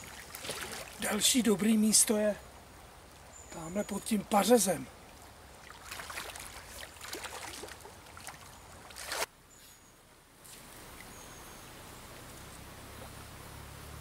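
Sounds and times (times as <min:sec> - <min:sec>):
water splashing from wading: 0:00.0 - 0:01.3, 0:04.9 - 0:09.3
faint stream flowing: 0:00.0 - 0:14.0.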